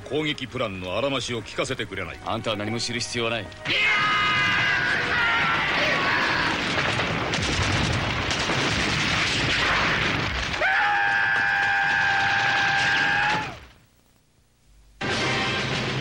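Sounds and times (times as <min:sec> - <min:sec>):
explosions: 0:04.3 - 0:10.8
gunfire: 0:04.9 - 0:10.6.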